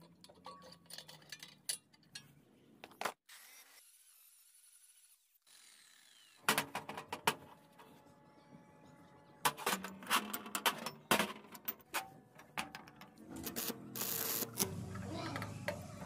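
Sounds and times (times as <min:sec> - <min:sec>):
metal clinks and knocks: 0:00.0 - 0:02.4.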